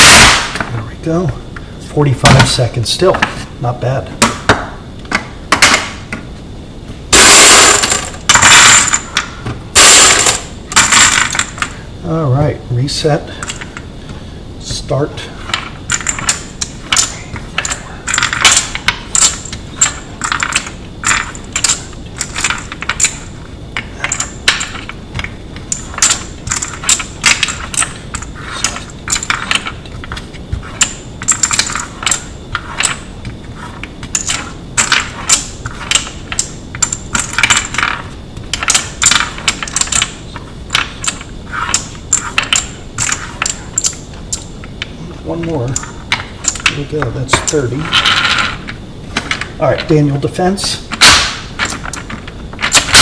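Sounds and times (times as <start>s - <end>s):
brass cartridges clinking: 7.1s - 9.2s, 9.8s - 11.7s.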